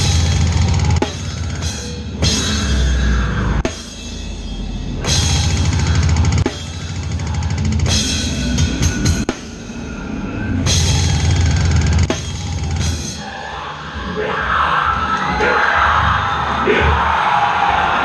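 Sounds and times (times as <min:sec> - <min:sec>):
crowd yelling and cheering: 0:00.0 - 0:04.1, 0:09.8 - 0:18.0
crashing cymbals: 0:00.0 - 0:13.3
heavy metal band playing: 0:00.0 - 0:18.0
fast double bass drum: 0:05.1 - 0:09.3.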